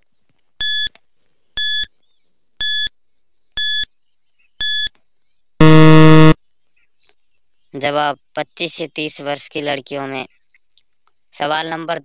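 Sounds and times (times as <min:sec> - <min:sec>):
low buzzer: 0:05.6 - 0:06.4
short high beeps: 0:05.6 - 0:06.4.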